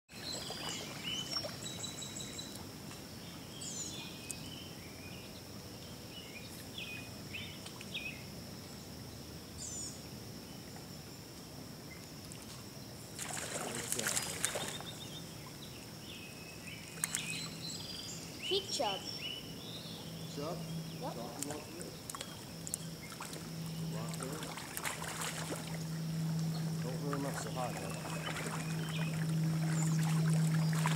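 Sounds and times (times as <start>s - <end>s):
creek water running: 0.1s - 3.5s, 13.1s - 30.9s
fish splashing at surface: 13.2s - 14.9s, 21.4s - 25.9s
bird chirps: 13.9s - 30.9s
thin high tone: 23.5s - 30.9s.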